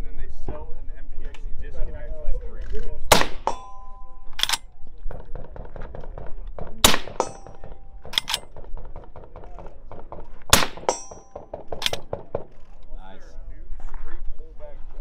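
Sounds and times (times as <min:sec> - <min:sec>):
rifle bolt clacking: 0:03.1 - 0:04.7, 0:06.8 - 0:08.6, 0:10.6 - 0:12.8
suppressed rifle shots: 0:03.1 - 0:04.7, 0:06.7 - 0:09.4, 0:10.0 - 0:12.2
metallic ringing: 0:03.3 - 0:04.7, 0:07.0 - 0:08.4, 0:10.6 - 0:11.6.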